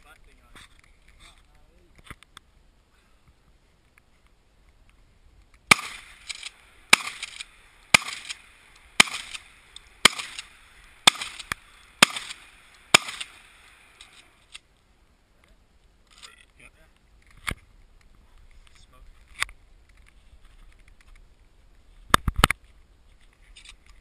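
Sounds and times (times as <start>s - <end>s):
gunshots with echo: 5.7s - 13.7s.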